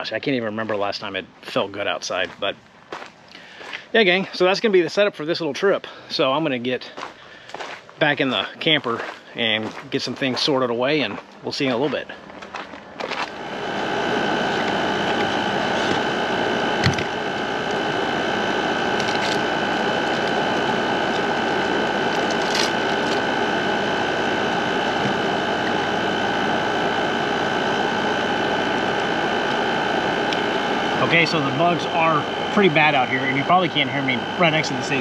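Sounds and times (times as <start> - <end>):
high steady whine: 0.0 - 6.9, 8.0 - 35.0
air conditioner humming: 8.0 - 35.0.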